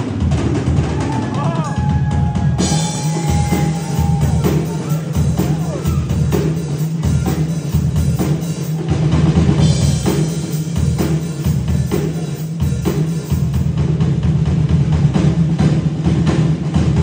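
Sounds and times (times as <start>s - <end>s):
drum kit groove: 0.0s - 17.0s.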